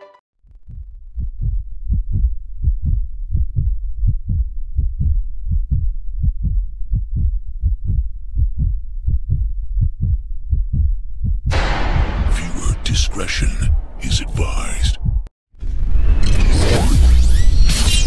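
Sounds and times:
heartbeat thumps: 0:00.6 - 0:15.3
loud burst of noise: 0:11.5 - 0:15.0.

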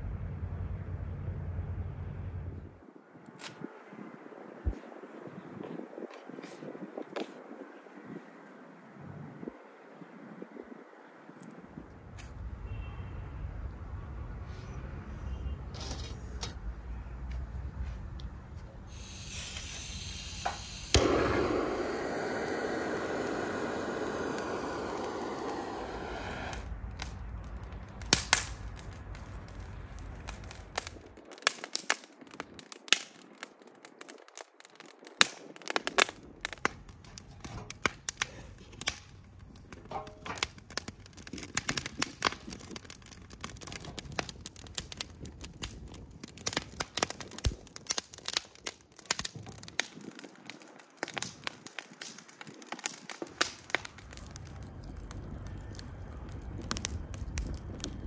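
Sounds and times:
wood fire crackling and popping: 0:15.8 - 0:58.0
steady rushing noise: 0:20.6 - 0:31.1.

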